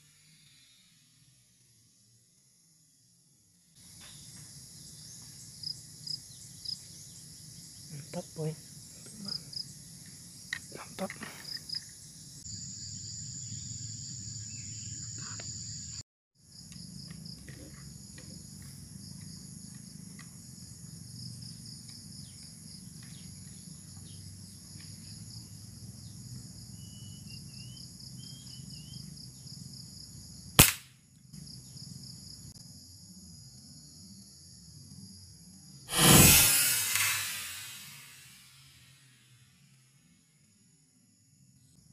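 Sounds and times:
insect chirring: 3.8 - 19.9
faint bird chirps: 26.7 - 29.2
air rifle shot: 30.6 - 30.8, 35.9 - 38.6.

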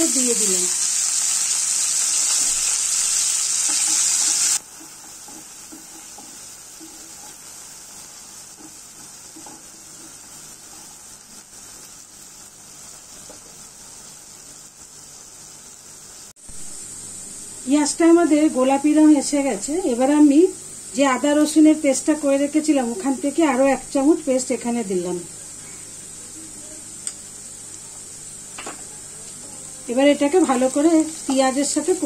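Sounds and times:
onions sizzling in hot oil: 0.0 - 32.0
wooden spatula stirring onions: 2.0 - 14.6.

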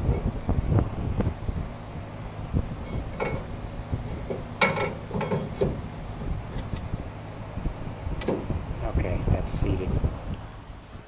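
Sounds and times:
metal bar clinking and knocking: 4.6 - 5.8.

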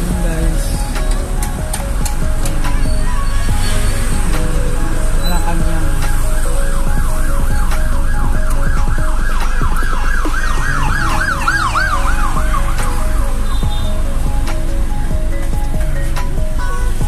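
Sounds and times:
background music: 0.0 - 17.0
siren in a fast yelp: 6.3 - 12.8.

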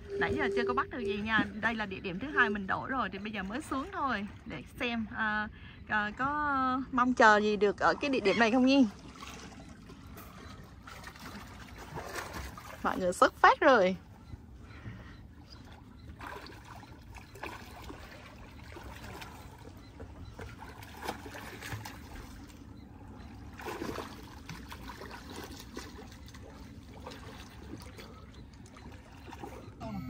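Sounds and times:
swimmers splashing water: 7.7 - 29.8.

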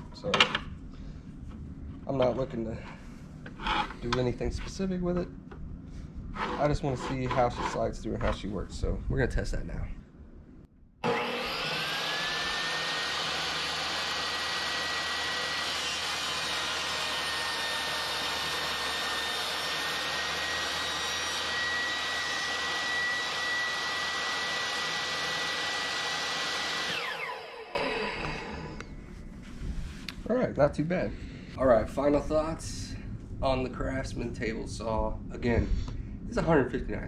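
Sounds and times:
saw cutting board: 6.3 - 7.9, 11.0 - 28.8
table saw whining: 11.0 - 28.9.

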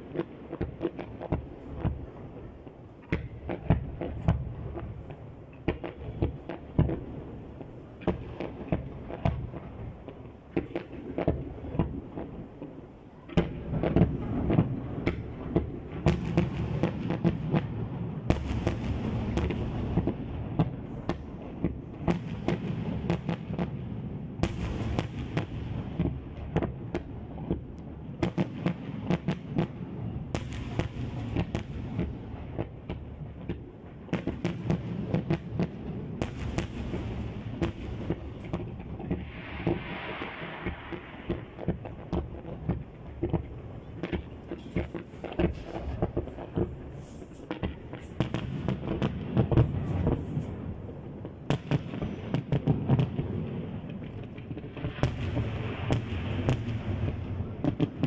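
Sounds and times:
fireworks crackling: 0.0 - 58.0.

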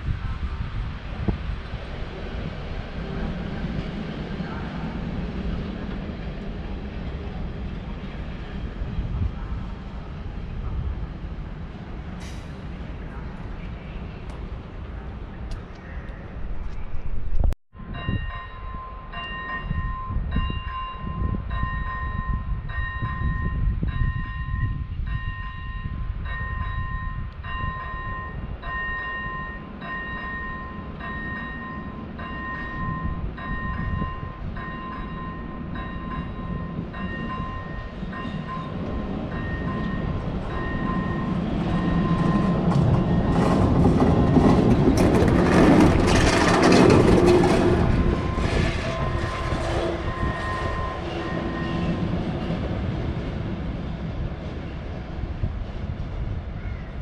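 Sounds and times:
electric locomotive passing: 0.0 - 57.0.

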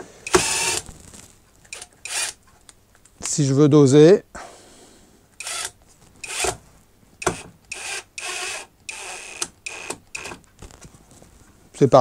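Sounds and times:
impact driver motor whine: 0.3 - 0.8, 1.7 - 2.4, 5.4 - 6.6, 7.2 - 10.4.

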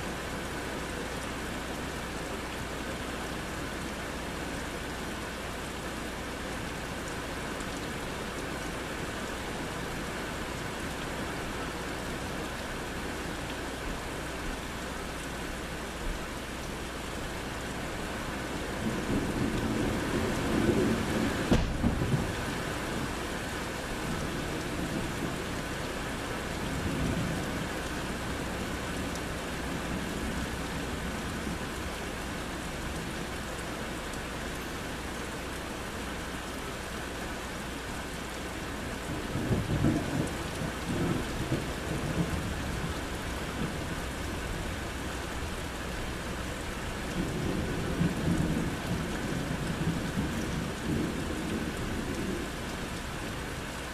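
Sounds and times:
rain falling on trees: 0.0 - 53.9
rolling thunder: 20.2 - 22.4.

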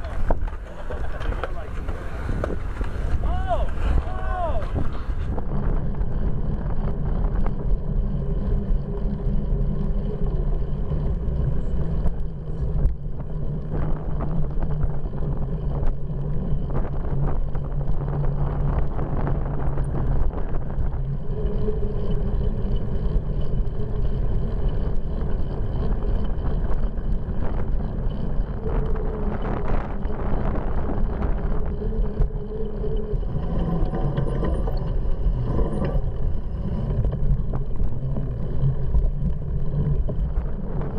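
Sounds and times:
bicycle rattles and knocks: 0.0 - 40.9
bicycle tyres rumbling: 0.0 - 40.9
wind on microphone: 0.0 - 40.9.

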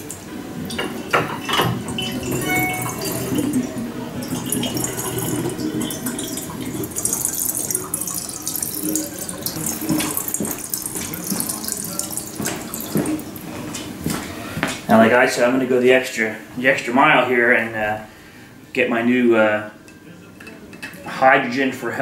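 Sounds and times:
water draining through glass vortex: 1.9 - 13.5.

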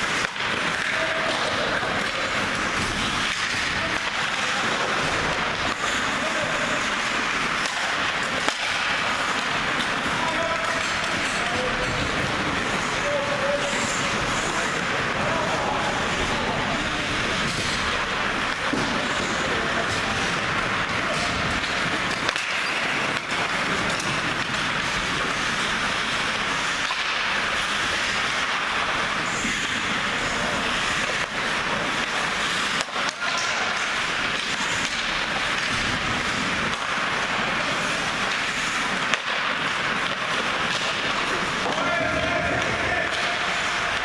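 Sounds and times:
skates scraping ice: 0.0 - 44.0
hockey stick and puck knocks: 20.9 - 28.8, 31.1 - 44.0.

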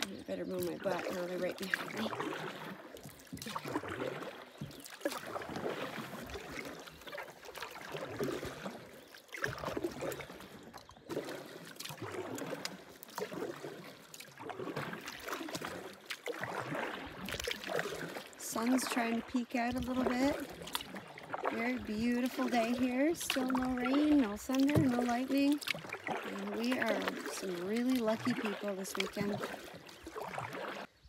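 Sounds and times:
canoe paddle splashing water: 0.0 - 31.0
water trickling off paddle: 0.0 - 31.0.

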